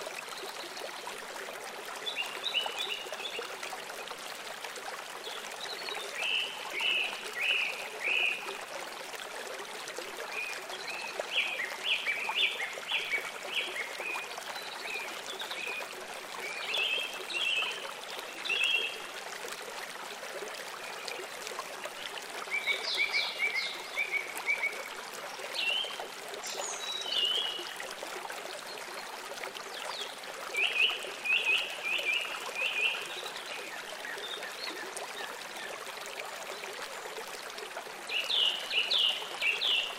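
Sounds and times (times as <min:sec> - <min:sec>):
flowing water: 0:00.0 - 0:39.9.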